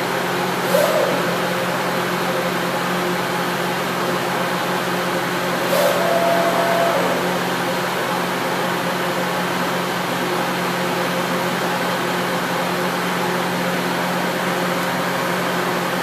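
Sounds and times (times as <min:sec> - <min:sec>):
router machine hum and hiss: 0:00.5 - 0:02.3, 0:05.2 - 0:08.5.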